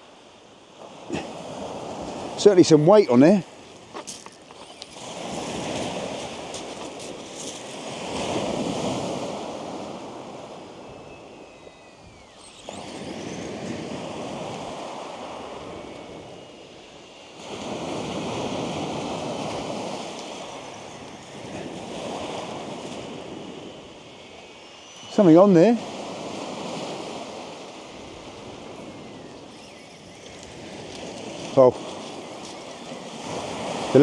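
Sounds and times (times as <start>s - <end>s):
waves washing over shingle: 0.8s - 10.7s, 17.3s - 29.4s, 30.0s - 34.0s.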